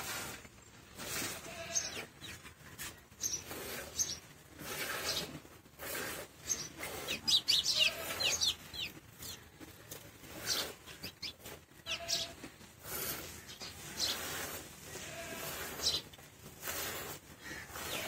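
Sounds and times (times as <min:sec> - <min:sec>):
birds chirping: 0:01.5 - 0:04.3, 0:06.4 - 0:12.4, 0:13.0 - 0:14.5, 0:15.8 - 0:16.2.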